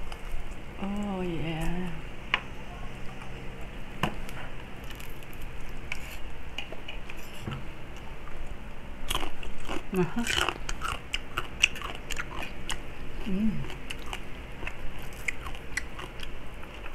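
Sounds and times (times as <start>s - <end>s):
crunchy crackle: 4.2s - 7.4s, 8.3s - 16.9s
person humming: 13.2s - 13.8s.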